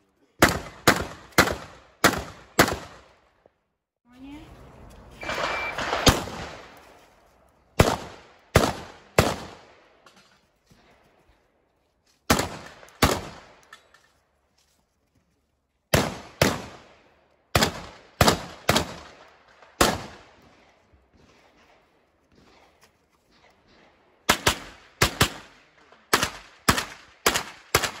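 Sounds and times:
shotgun shots: 0:00.4 - 0:03.1, 0:05.2 - 0:06.8, 0:07.8 - 0:09.9, 0:12.3 - 0:13.6, 0:15.9 - 0:28.0
short beep: 0:05.2 - 0:05.8.

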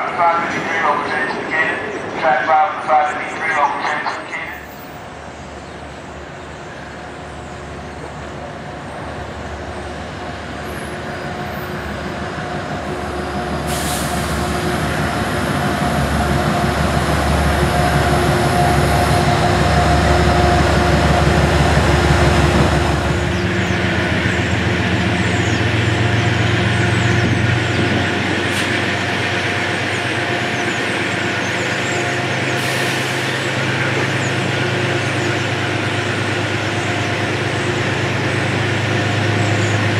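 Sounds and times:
diesel locomotive engine: 0:00.0 - 0:39.9
air brakes hissing: 0:13.6 - 0:14.7, 0:32.6 - 0:33.5.

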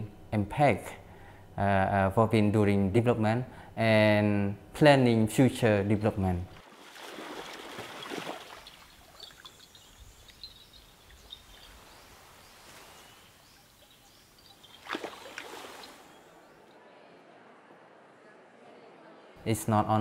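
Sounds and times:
soft steady hiss: 0:08.2 - 0:16.8
faint high bird chirps: 0:08.7 - 0:16.8.

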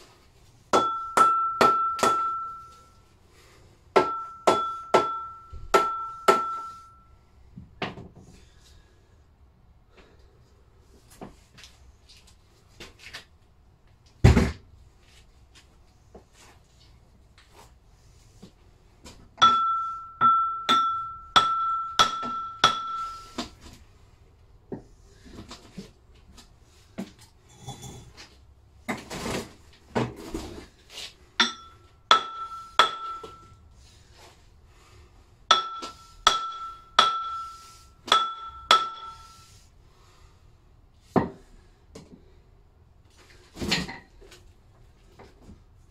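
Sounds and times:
hammer striking steel: 0:00.7 - 0:02.8, 0:04.0 - 0:07.0, 0:19.4 - 0:23.4, 0:31.4 - 0:33.5, 0:35.5 - 0:39.5.

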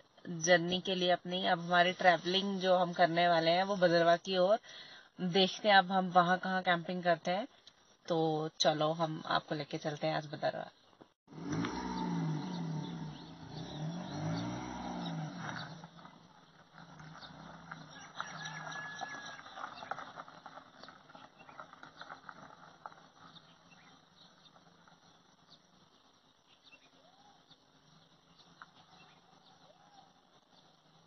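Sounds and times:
faint outdoor background: 0:00.0 - 0:31.0
car engine pulling away: 0:11.3 - 0:26.0.

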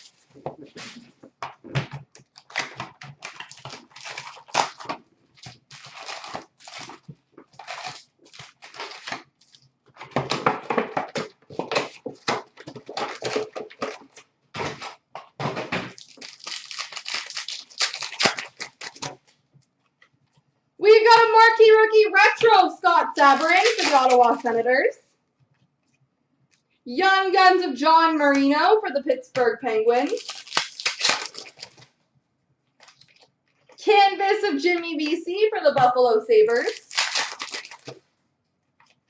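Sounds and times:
wrappers crinkling: 0:00.0 - 0:01.1, 0:02.2 - 0:10.1, 0:11.1 - 0:15.1, 0:15.9 - 0:19.4, 0:22.4 - 0:24.8, 0:29.8 - 0:32.0, 0:32.8 - 0:33.8, 0:36.4 - 0:38.0
cardboard rustling: 0:00.0 - 0:19.4, 0:22.4 - 0:24.7, 0:29.9 - 0:32.0, 0:36.4 - 0:38.0.

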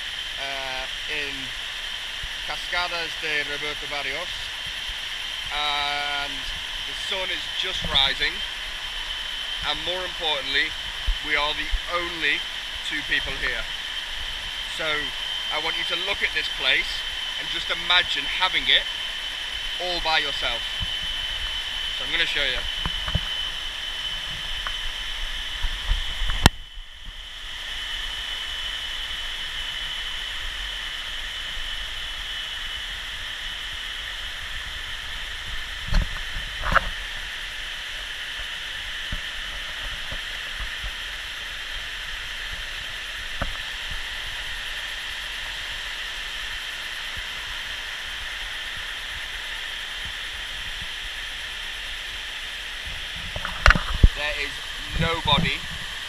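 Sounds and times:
waterfall rushing over rocks: 0:00.0 - 0:56.0.

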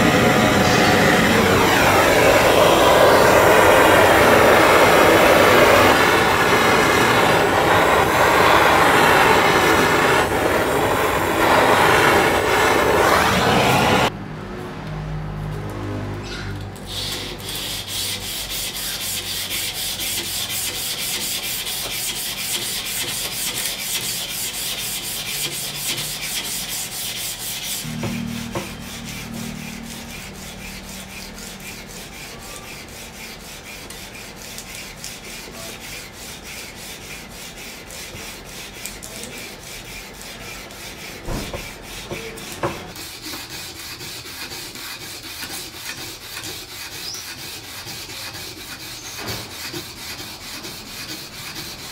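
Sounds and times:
sandpaper rasping on knife blade: 0:16.8 - 0:51.9.

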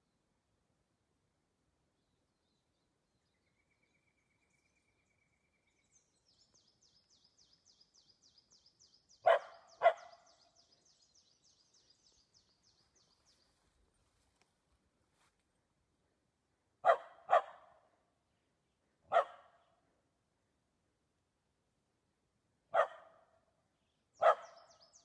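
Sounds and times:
dog barking: 0:09.2 - 0:10.3, 0:16.8 - 0:17.8, 0:19.1 - 0:19.6, 0:22.7 - 0:23.2, 0:24.2 - 0:24.7.

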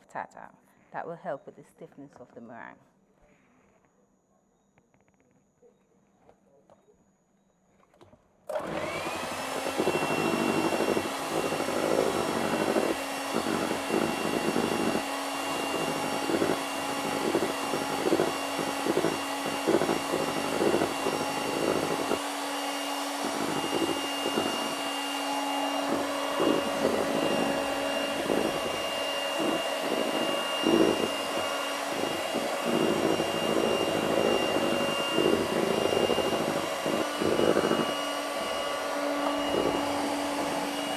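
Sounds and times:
electric mixer whining: 0:08.5 - 0:40.9.

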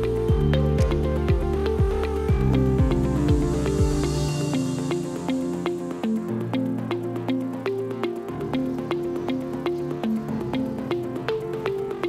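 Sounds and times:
steady kick drum: 0:00.0 - 0:04.6
upbeat electronic music: 0:00.0 - 0:12.0.

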